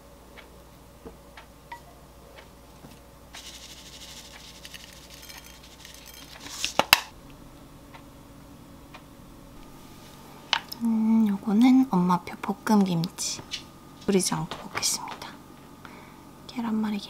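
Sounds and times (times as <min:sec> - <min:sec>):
sesame seeds sprinkled onto plate: 0:03.3 - 0:07.0.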